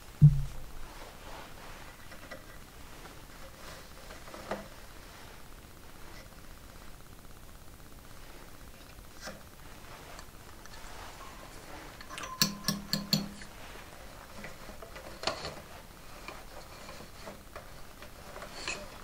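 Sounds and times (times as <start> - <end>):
yarn rustling: 0.0 - 7.0, 8.1 - 12.0, 13.5 - 19.0
wooden fork tapping loom: 12.1 - 13.5.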